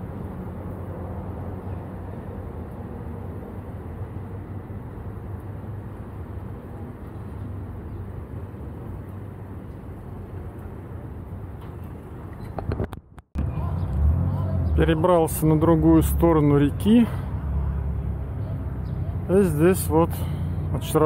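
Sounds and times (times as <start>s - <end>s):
ferry engine humming: 0.0s - 12.6s.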